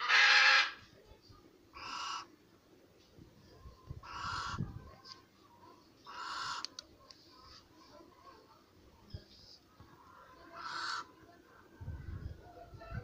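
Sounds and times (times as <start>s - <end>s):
owl hissing calls: 0.0s - 0.8s, 1.8s - 2.3s, 4.0s - 4.6s, 6.1s - 6.8s, 10.6s - 11.1s.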